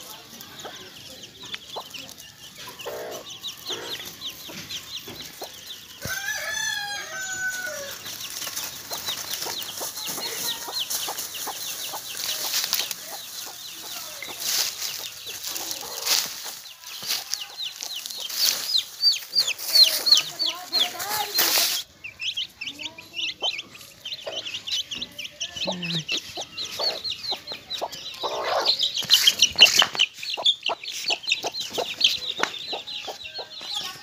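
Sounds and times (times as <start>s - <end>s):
chicks peeping: 0.0s - 34.0s
dry leaves rustling: 1.6s - 21.9s.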